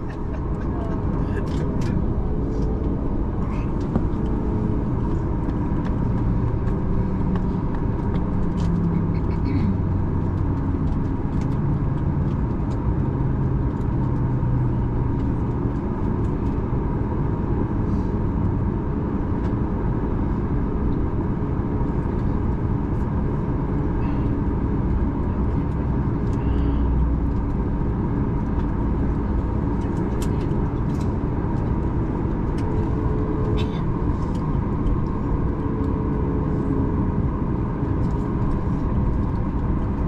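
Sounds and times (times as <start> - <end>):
jet engines idling: 21.8 - 40.0.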